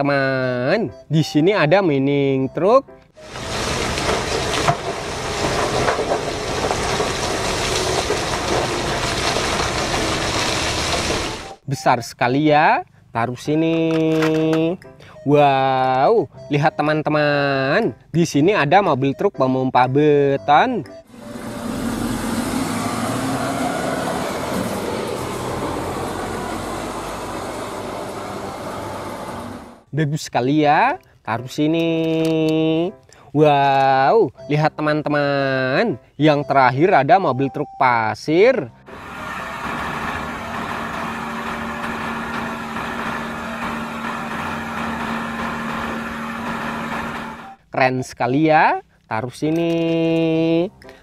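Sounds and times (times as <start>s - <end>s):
rock and earth pouring from truck: 3.2s - 11.6s
diesel truck engine drone: 3.2s - 11.7s, 20.9s - 29.9s, 38.7s - 47.6s
street noise: 20.5s - 29.9s, 38.8s - 47.6s.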